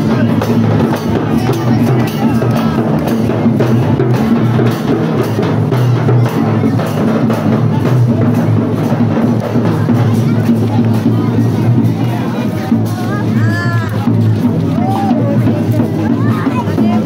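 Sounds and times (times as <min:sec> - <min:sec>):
drums and percussion beating: 0:00.0 - 0:17.0.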